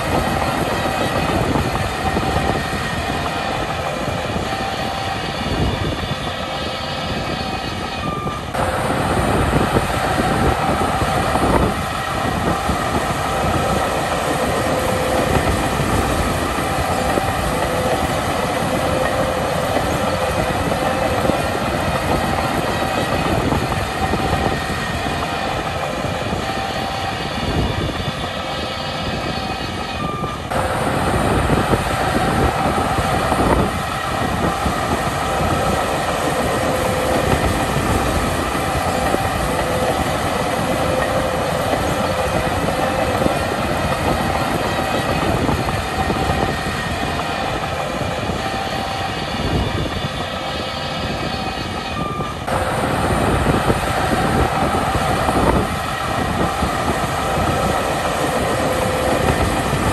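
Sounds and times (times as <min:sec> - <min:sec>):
bulldozer diesel engine running hard: 0:00.0 - 0:59.9
steel tracks clanking and squealing: 0:00.0 - 0:59.9.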